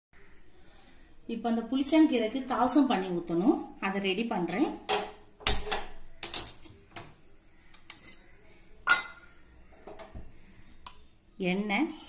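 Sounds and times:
steel kitchenware clinking: 8.0s - 9.3s.

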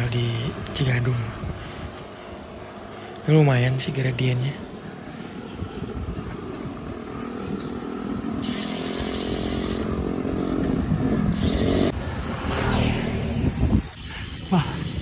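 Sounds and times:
wind buffeting microphone: 0.0s - 2.7s, 4.6s - 15.0s
motorcycle engine buzzing: 4.6s - 14.5s.

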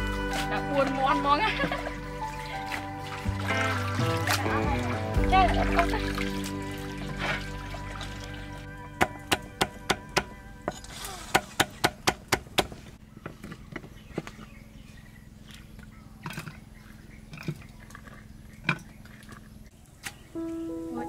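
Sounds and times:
background music: 0.0s - 11.7s, 20.3s - 21.0s.

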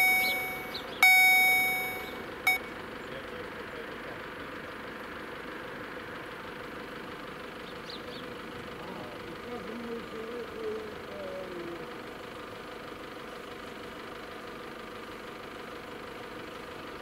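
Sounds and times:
electronic bell ding: 0.0s - 2.6s.

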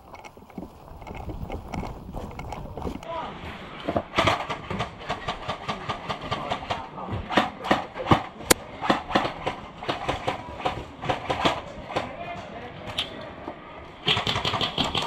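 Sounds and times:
airsoft guns firing: 7.3s - 11.7s, 14.0s - 15.0s.

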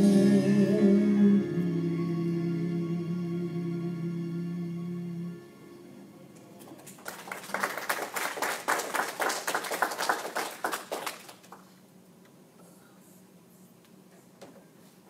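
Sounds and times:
people clapping: 6.7s - 11.7s.

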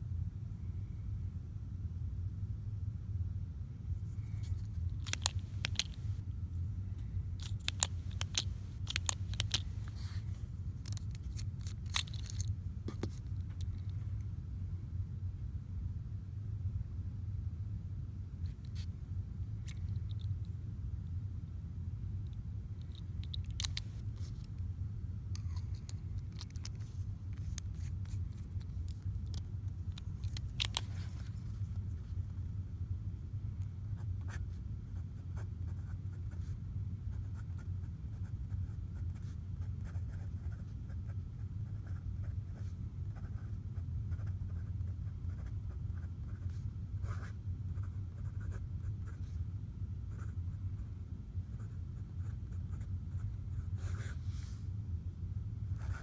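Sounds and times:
pen nib scratching on paper: 4.3s - 6.2s, 7.4s - 13.7s, 22.8s - 24.5s, 25.4s - 31.4s
pen clicks: 4.5s - 6.1s, 7.4s - 10.2s, 10.8s - 13.9s, 22.8s - 24.5s, 25.4s - 26.8s, 27.4s - 31.0s.

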